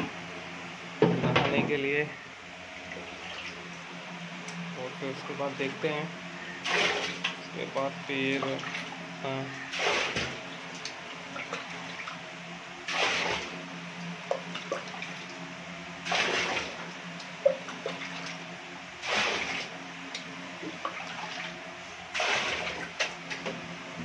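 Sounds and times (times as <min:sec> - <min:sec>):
steady low hum: 0:00.0 - 0:24.0
water pouring and splashing: 0:06.6 - 0:07.4, 0:09.7 - 0:12.2, 0:12.8 - 0:13.6, 0:16.0 - 0:18.4, 0:19.0 - 0:19.8, 0:20.7 - 0:23.2.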